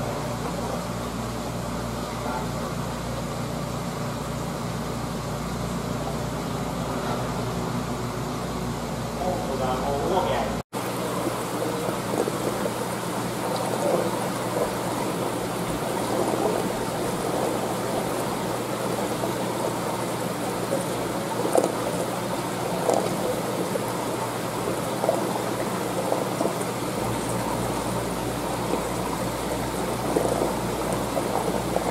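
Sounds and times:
aquarium water trickling: 0:10.8 - 0:31.9.

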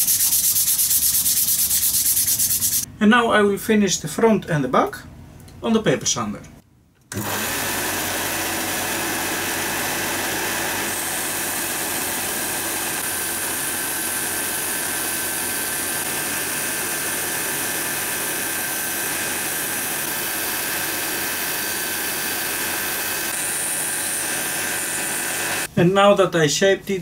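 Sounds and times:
belt sander motor hum: 0:07.1 - 0:25.7.

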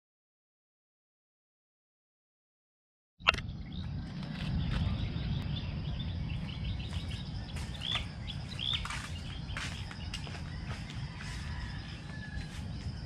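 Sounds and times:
birds chirping: 0:03.2 - 0:13.0
low steady rumble: 0:03.3 - 0:09.3.

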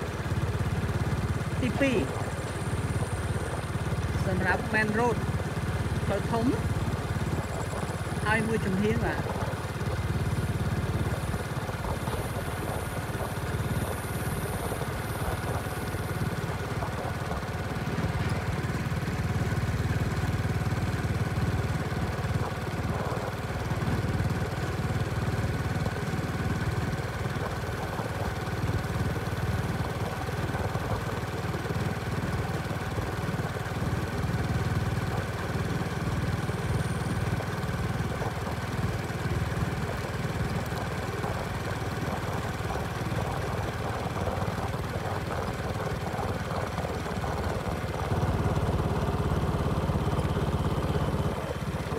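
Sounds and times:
vehicle engine running: 0:00.0 - 0:51.9.

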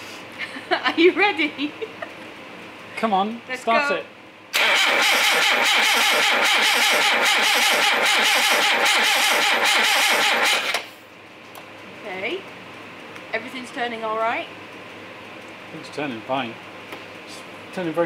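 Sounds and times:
starter motor cranking engine: 0:04.5 - 0:11.0.

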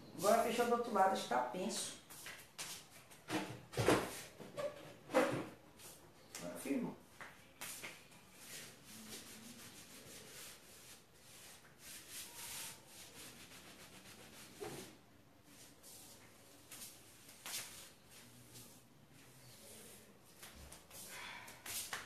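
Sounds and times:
hand sanding painted wood: 0:08.3 - 0:14.9.

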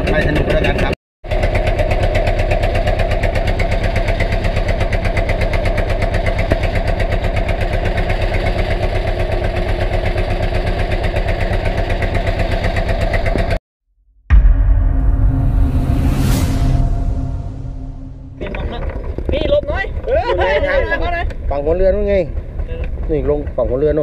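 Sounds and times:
boat engine running: 0:00.0 - 0:13.6, 0:18.4 - 0:24.0.

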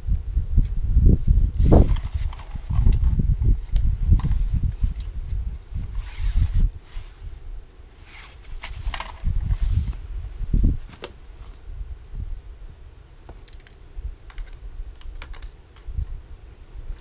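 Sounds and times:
clicks and rustles of camping gear: 0:01.6 - 0:07.2, 0:08.0 - 0:10.0, 0:10.8 - 0:11.6, 0:13.3 - 0:16.0.

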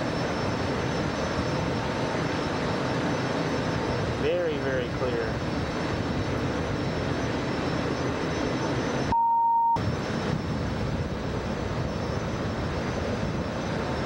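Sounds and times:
electronic beep: 0:09.0 - 0:09.8.

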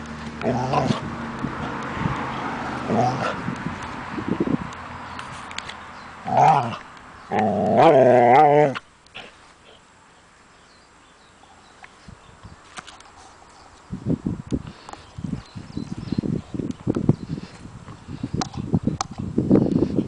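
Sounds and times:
dog play-growling: 0:00.3 - 0:01.1, 0:02.7 - 0:03.4, 0:06.2 - 0:09.4.

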